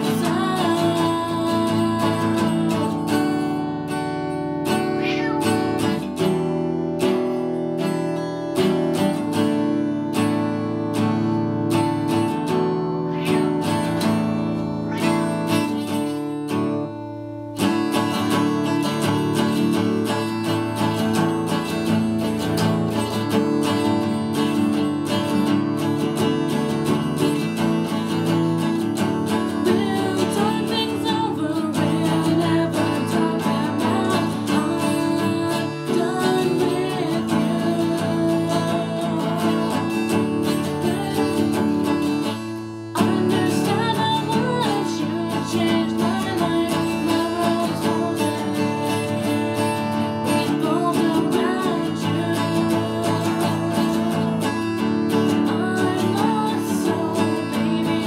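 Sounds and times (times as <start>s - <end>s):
woman singing: 0.0s - 4.1s, 11.8s - 16.6s, 27.2s - 58.0s
acoustic guitar strumming: 0.0s - 58.0s.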